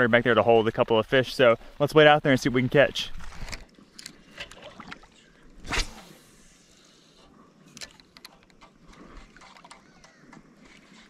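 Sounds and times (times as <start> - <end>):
river water sloshing and splashing: 3.1 - 6.2
loud splash-like swish: 5.6 - 6.2
faint clicks: 7.6 - 11.0.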